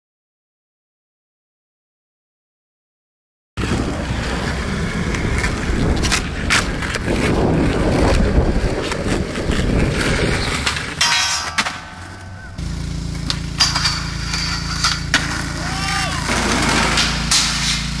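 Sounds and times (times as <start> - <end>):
wind on microphone: 3.6 - 11.0
skateboard clacks: 3.6 - 18.0
skateboard wheels rolling on concrete: 3.6 - 18.0.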